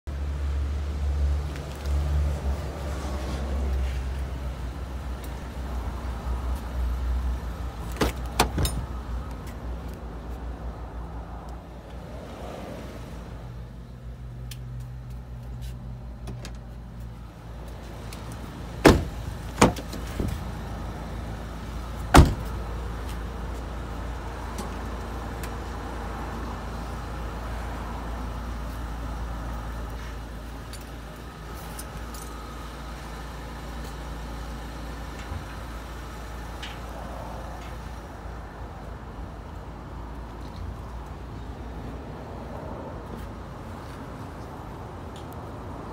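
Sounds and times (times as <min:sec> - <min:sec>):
car doors slamming: 0:07.9 - 0:08.9, 0:18.8 - 0:20.4, 0:22.1 - 0:22.6.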